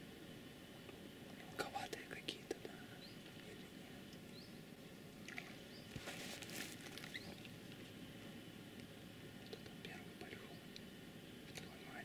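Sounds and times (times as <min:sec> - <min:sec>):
brief rustle: 0:05.9 - 0:07.5.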